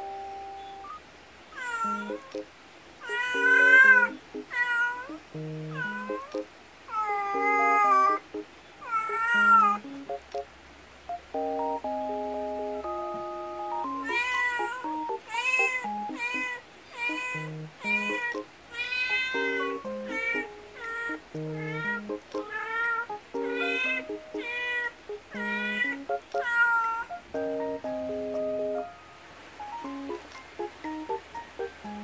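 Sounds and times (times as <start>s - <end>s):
light plucked background music: 0.0s - 1.0s, 1.9s - 2.5s, 3.1s - 4.5s, 5.1s - 6.5s, 7.4s - 8.5s, 9.4s - 29.0s, 29.6s - 32.0s
cat meowing: 0.8s - 2.4s, 3.0s - 8.2s, 8.8s - 9.8s, 14.0s - 27.1s.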